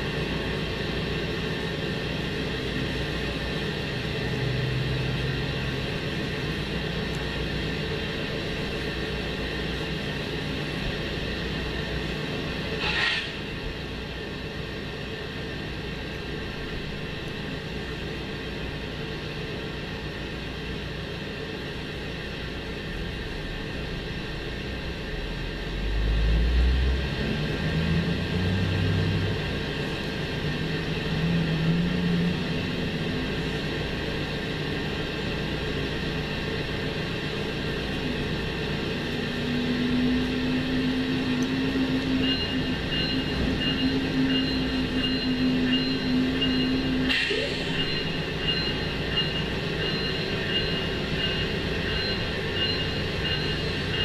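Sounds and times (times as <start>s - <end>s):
diesel locomotive engine hum: 0.0s - 54.0s
thin high steady tones: 40.0s - 54.0s.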